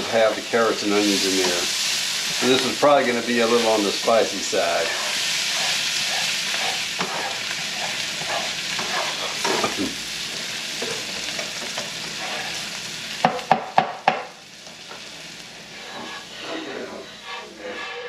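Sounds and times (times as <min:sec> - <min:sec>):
vegetables sizzling in frying pan: 0:00.0 - 0:18.0
utensil scraping pan: 0:03.4 - 0:09.8, 0:12.2 - 0:12.6, 0:15.6 - 0:18.0.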